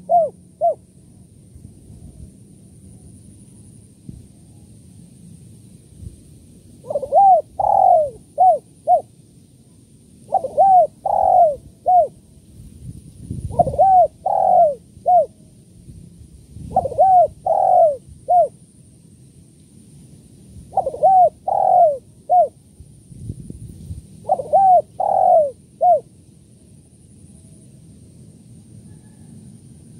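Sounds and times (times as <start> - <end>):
dove cooing: 0.0 - 0.8, 6.8 - 9.1, 10.3 - 12.2, 13.5 - 15.4, 16.7 - 18.6, 20.7 - 22.6, 24.2 - 26.1.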